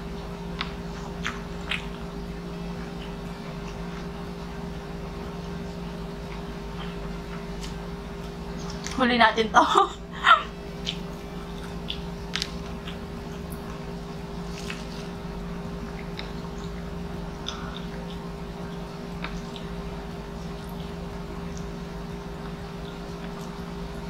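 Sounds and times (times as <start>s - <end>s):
steady low hum: 0.0s - 24.0s
wet squishes: 10.8s - 15.2s.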